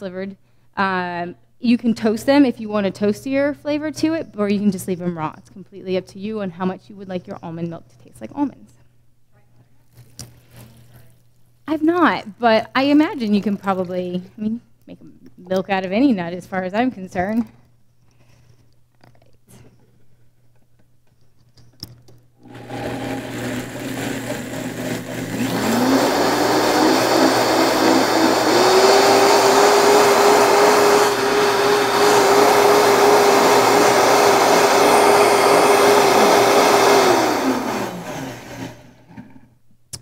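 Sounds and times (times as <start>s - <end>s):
blender motor: 22.4s - 39.0s.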